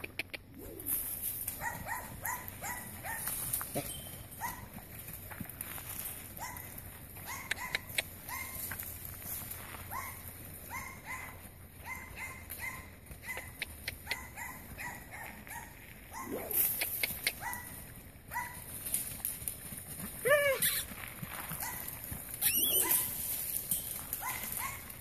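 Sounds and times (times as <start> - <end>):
dog yipping: 1.6 - 4.7, 6.4 - 8.7, 9.9 - 17.7, 18.3 - 18.6, 20.2 - 20.9, 21.6 - 23.3, 24.1 - 25.0.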